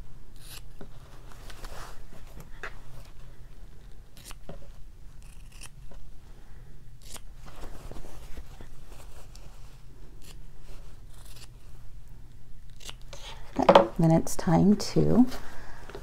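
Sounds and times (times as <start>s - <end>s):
low steady hum: 0.0s - 16.0s
scissors snipping fabric: 7.0s - 7.3s.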